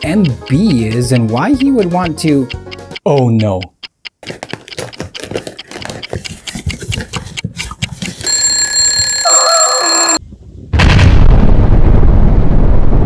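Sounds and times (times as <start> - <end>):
alarm clock ringing: 8.2 - 10.2.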